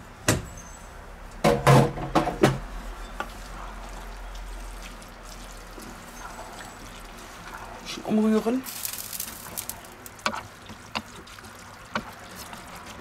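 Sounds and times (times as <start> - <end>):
wooden spoon stirring spaghetti: 3.2 - 13.0.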